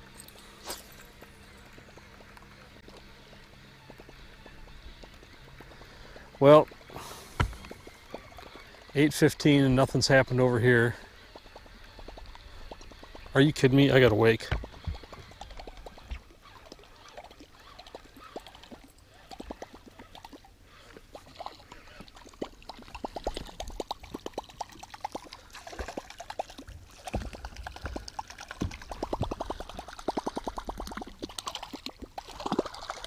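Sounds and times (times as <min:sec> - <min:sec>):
lure gurgling and splashing on water: 0:00.0 - 0:33.0.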